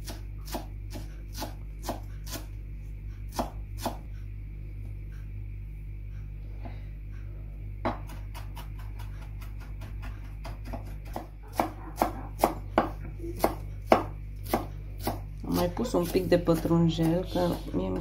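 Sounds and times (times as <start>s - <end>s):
knife chopping on wooden board: 3.3s - 4.0s, 7.8s - 15.3s.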